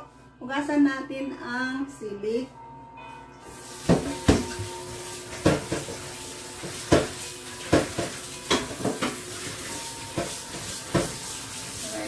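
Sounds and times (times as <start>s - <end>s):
running tap water: 3.5s - 12.0s
metal dishes clanking in sink: 3.8s - 11.4s.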